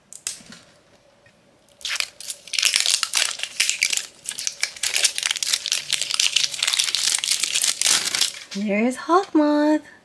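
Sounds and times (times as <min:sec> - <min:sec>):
plastic shrink wrap crinkling: 0:01.7 - 0:08.7.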